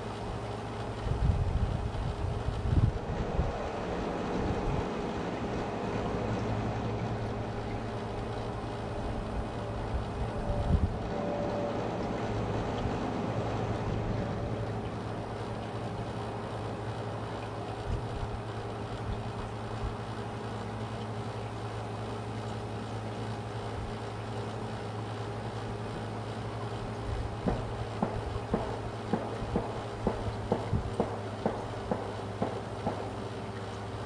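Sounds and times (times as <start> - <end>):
steady low rumble: 0.0 - 22.0, 25.2 - 34.0
wind buffeting microphone: 1.0 - 5.0, 9.0 - 11.1.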